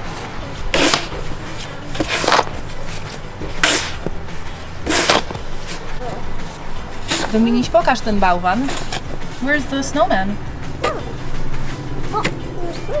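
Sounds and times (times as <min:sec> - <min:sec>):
snow shovel scraping sidewalk: 0:00.0 - 0:10.3.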